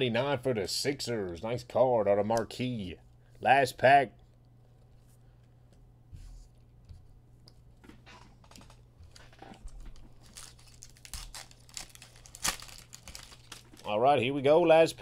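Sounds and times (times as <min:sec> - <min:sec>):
foil wrapper tearing and crinkling: 0:09.9 - 0:14.0.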